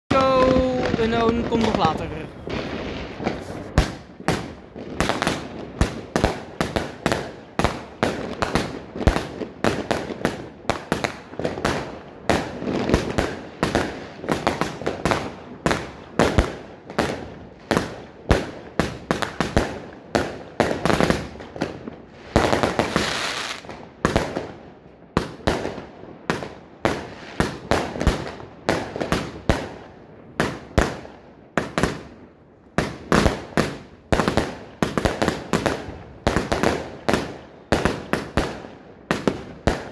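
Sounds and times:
firework shots bursting with bangs: 0:00.1 - 0:39.9
firework hissing crackle: 0:00.4 - 0:19.9, 0:20.7 - 0:24.5, 0:26.9 - 0:29.7.

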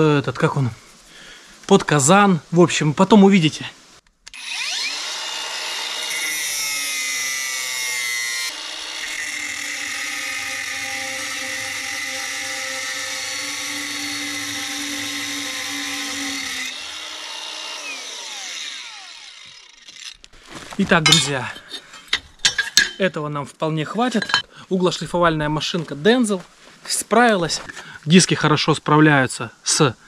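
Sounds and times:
angle grinder cutting steel pipe: 0:04.3 - 0:20.2.

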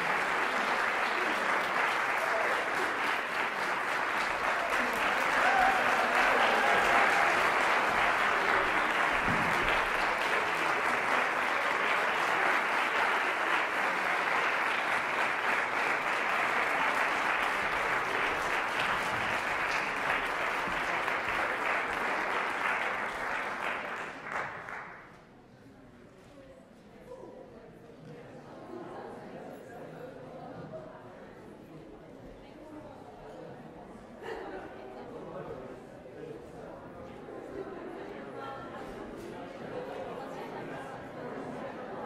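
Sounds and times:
audience applauding: 0:00.0 - 0:25.2.

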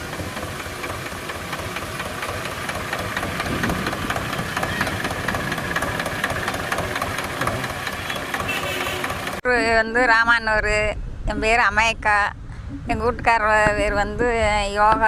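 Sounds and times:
tractor diesel engine running: 0:00.0 - 0:09.6.

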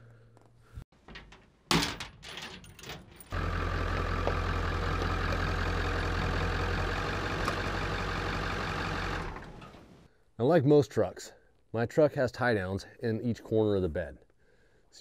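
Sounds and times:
diesel engine idling: 0:03.3 - 0:10.0.

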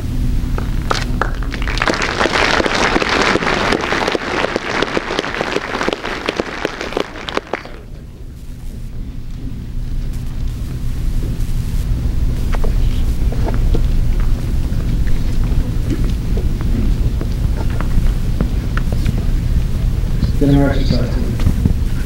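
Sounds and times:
steady low hum: 0:00.0 - 0:22.0
audience applauding: 0:00.6 - 0:08.0.

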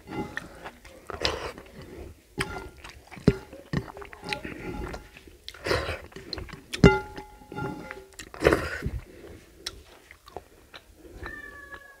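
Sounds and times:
chewing and mouth sounds: 0:00.0 - 0:07.0, 0:07.8 - 0:11.9
fingers scraping and tapping plate: 0:00.0 - 0:08.6.

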